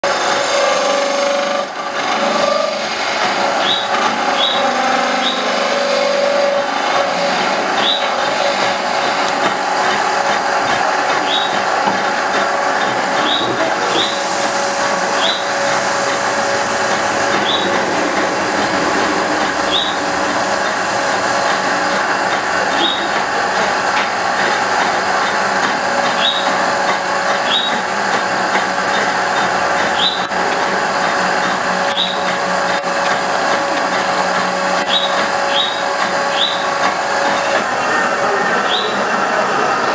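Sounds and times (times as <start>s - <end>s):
cutting tool shaving wood: 0.0s - 39.7s
wood lathe humming: 0.0s - 39.9s
short high squeaks: 3.6s - 6.2s, 7.2s - 8.2s.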